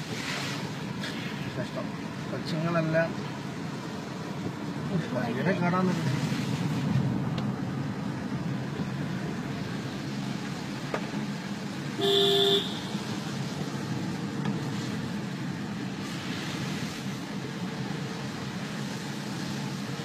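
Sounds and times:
vehicle road and engine noise: 0.0 - 20.0
vehicle horn honk: 12.0 - 12.9.

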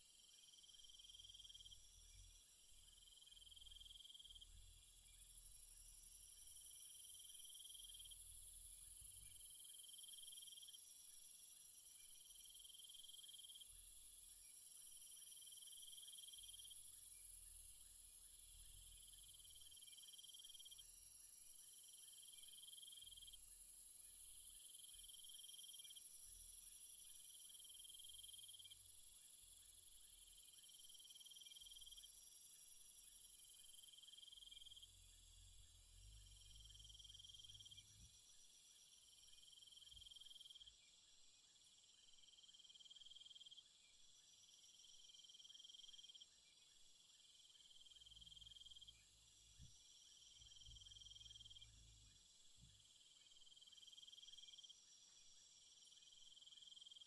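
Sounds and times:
insects trilling: 47.3 - 52.2.

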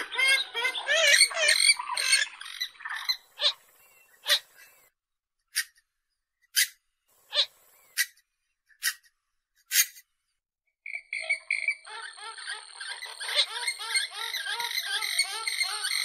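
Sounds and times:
swamphen calls: 0.0 - 4.8, 7.3 - 8.2, 10.9 - 16.0.

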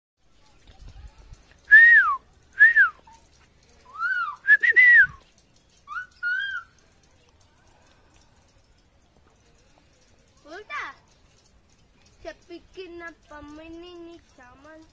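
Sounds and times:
parakeet whistled calls: 5.9 - 6.7.

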